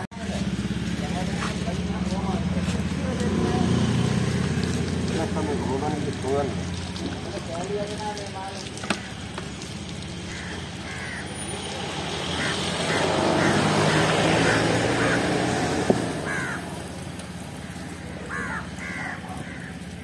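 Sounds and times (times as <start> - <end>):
vehicle passing by: 0.0 - 20.0
crows cawing: 8.8 - 9.6, 10.3 - 11.4, 12.3 - 20.0.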